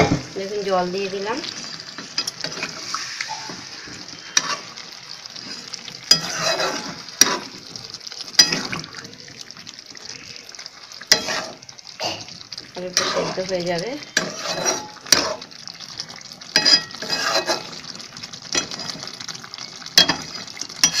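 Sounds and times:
curry sizzling: 0.0 - 21.0
metal spatula scraping pan: 1.4 - 4.8, 5.4 - 7.6, 11.1 - 17.8, 20.0 - 21.0.

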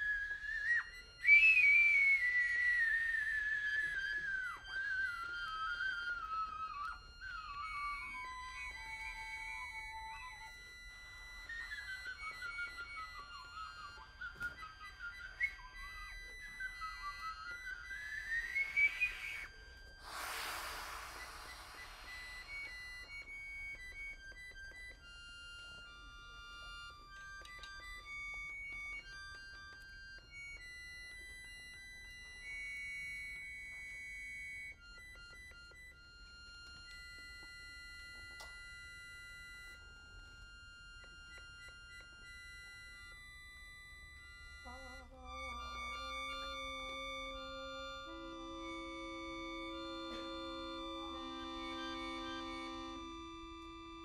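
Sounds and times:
trumpet long-held high tones: 0.0 - 24.1, 34.6 - 54.0
accordion chord: 17.1 - 32.6, 34.6 - 54.0.

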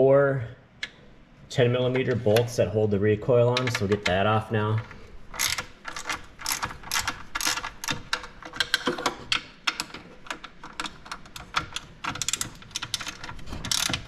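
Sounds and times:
ratchet wrench clicking: 12.2 - 14.0.

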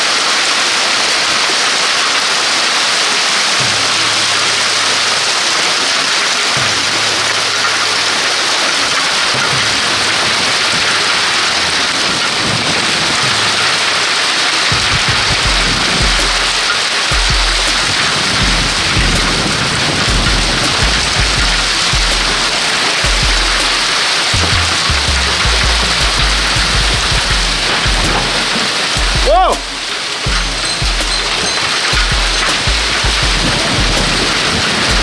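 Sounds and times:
heavy rain and hail: 0.0 - 35.0
low thumps: 14.7 - 35.0.

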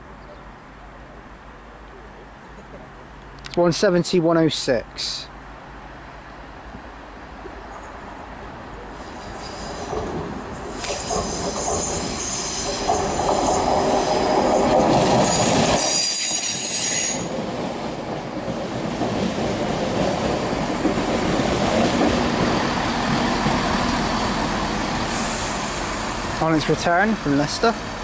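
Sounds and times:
diesel train engines running: 5.0 - 28.0
train brakes squealing: 9.0 - 10.1, 10.7 - 17.4, 22.3 - 26.3.

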